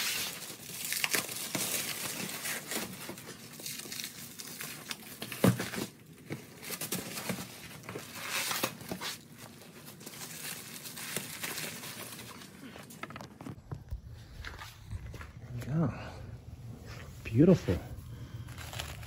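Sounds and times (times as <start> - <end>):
plastic wrap crinkling and tearing: 0.0 - 13.8, 18.0 - 19.0.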